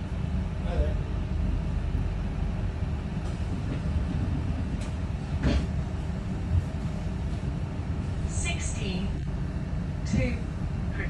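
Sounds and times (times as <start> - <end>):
bus engine rumble: 0.0 - 11.0
faint steady hum: 6.0 - 11.0.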